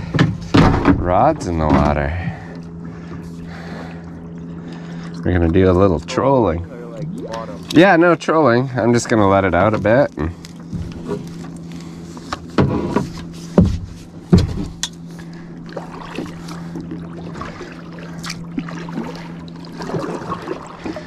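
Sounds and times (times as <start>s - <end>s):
steady low hum: 0.0s - 21.0s
knocks against kayak hull: 12.5s - 14.9s.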